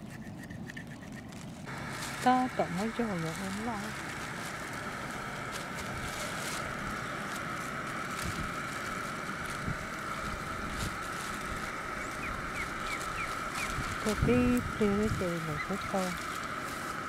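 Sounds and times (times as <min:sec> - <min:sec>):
wind rumbling on microphone: 0:00.0 - 0:17.0
steady hiss: 0:01.7 - 0:17.0
bird chirps: 0:12.0 - 0:13.8.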